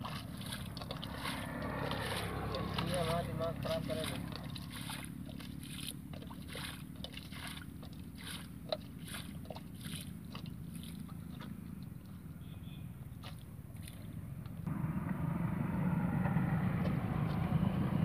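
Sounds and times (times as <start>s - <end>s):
steady low rumble: 0.0s - 6.5s, 14.6s - 18.0s
muddy water splashing: 0.0s - 14.7s.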